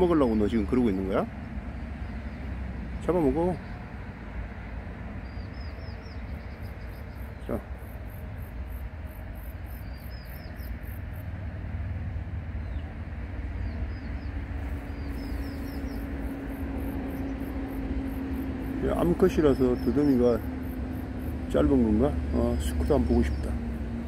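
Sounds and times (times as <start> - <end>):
high pulsed insect call: 5.2 - 11.4, 13.9 - 21.8.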